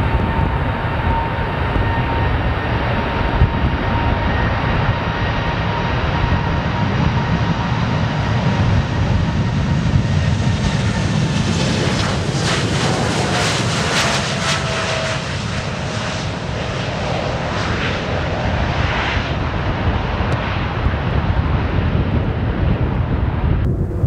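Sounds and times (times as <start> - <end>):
jet engines rumbling: 0.0 - 24.0.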